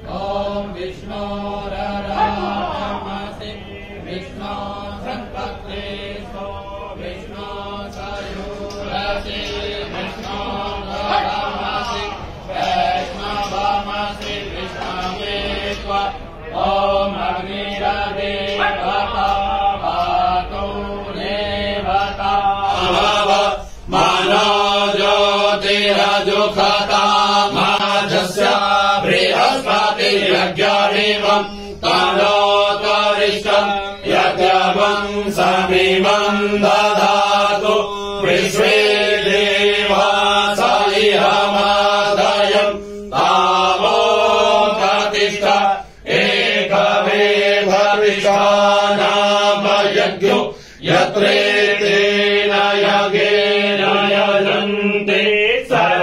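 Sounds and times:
men chanting in unison: 0.0 - 56.0.

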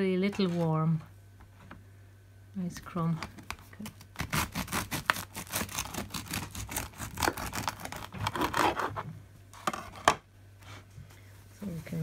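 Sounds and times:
bread knife sawing loaf: 4.3 - 8.9.

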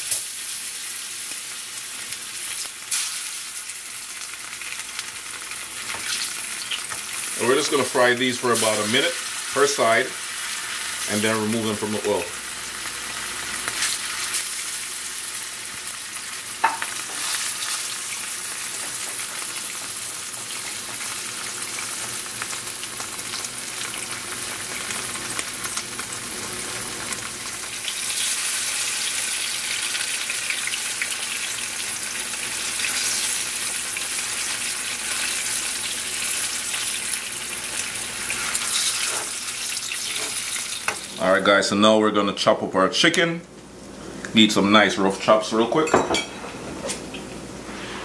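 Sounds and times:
plantain sizzling in hot oil: 0.0 - 41.2.

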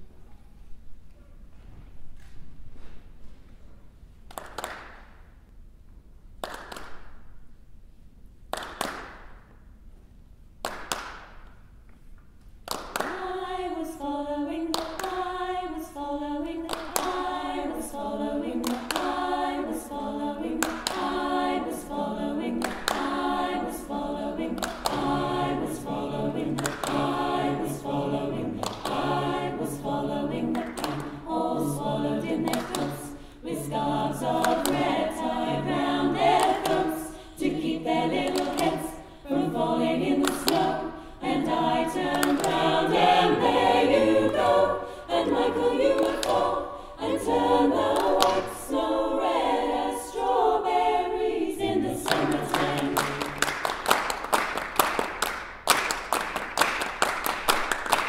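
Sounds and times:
hand clapping: 4.3 - 5.3, 6.4 - 7.3, 8.5 - 9.6, 10.6 - 11.6, 12.7 - 13.3, 16.7 - 17.3, 18.6 - 19.3, 20.6 - 21.2, 22.6 - 23.2, 24.6 - 25.2, 26.4 - 27.4, 28.6 - 29.4, 30.5 - 31.3, 32.4 - 33.1, 34.4 - 35.0, 36.2 - 36.9, 38.2 - 38.8, 40.2 - 40.8, 42.0 - 42.6, 48.0 - 48.5, 52.0 - 58.0
choir singing a cappella: 12.9 - 54.2.

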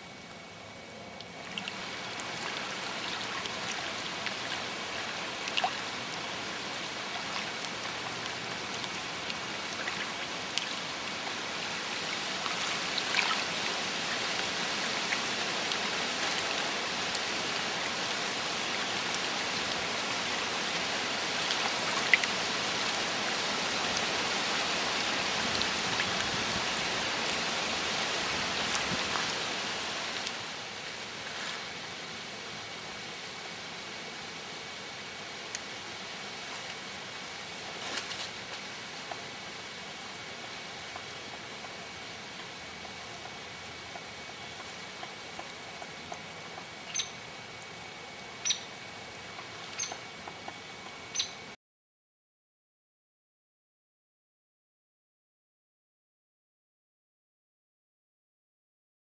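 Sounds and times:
water rushing: 0.0 - 51.0
water dripping ticks: 1.2 - 26.4, 40.8 - 51.4.

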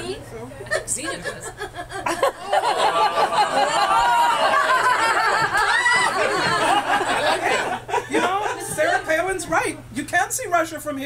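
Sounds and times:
audience laughing: 0.7 - 9.3.

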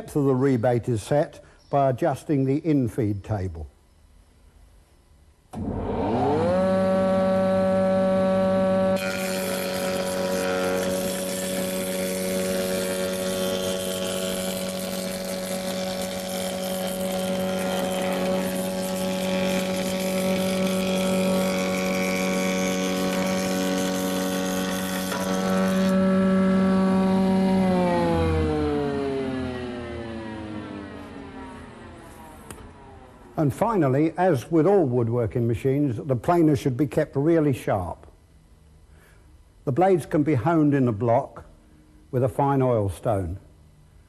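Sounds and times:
planer motor humming: 5.5 - 33.2
planer cutting wood: 5.6 - 32.3.

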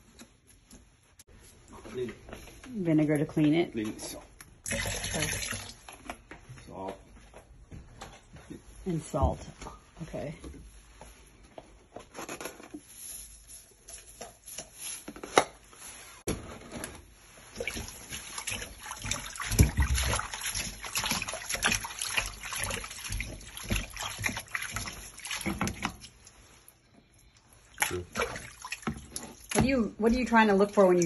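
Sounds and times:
hands rubbing and splashing water: 17.1 - 31.0.

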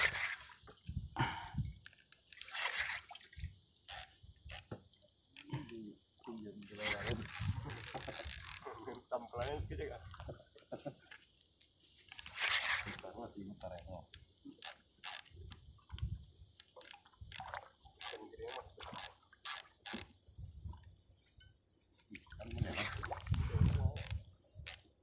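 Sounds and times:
fishing reel clicking and ratcheting: 2.1 - 2.6, 3.9 - 4.7, 5.4 - 5.8, 6.6 - 8.6, 9.4 - 9.6, 14.1 - 15.6, 16.6 - 20.2, 23.6 - 24.8.

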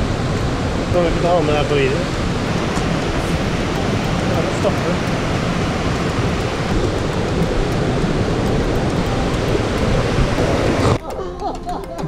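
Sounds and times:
whitewater river rushing: 0.0 - 12.0.

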